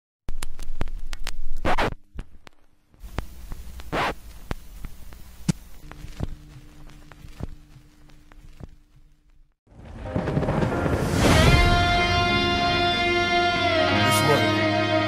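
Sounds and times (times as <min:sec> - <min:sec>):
low steady hum: 0:00.3 - 0:09.6
sharp clicks and crackles: 0:00.3 - 0:09.6.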